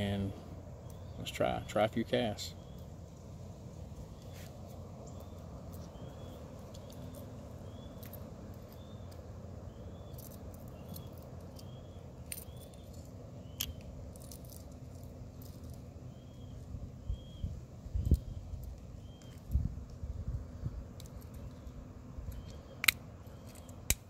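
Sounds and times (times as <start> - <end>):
low background noise: 0.0 - 24.0
metallic clicks of pliers crimping: 22.3 - 24.0.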